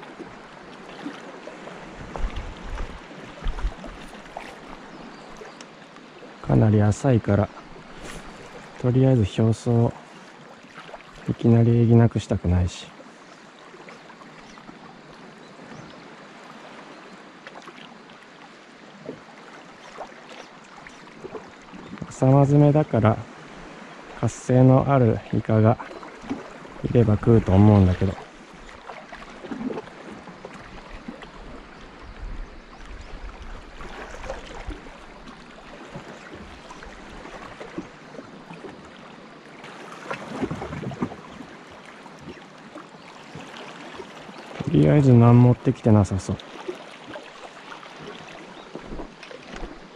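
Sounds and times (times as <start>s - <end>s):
sea water lapping softly: 0.0s - 49.9s
small waves lapping on rocks: 32.6s - 49.9s.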